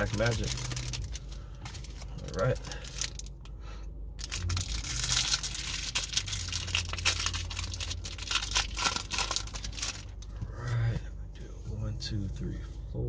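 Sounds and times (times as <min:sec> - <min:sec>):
foil wrapper tearing and crinkling: 0:00.0 - 0:03.4, 0:04.2 - 0:10.3.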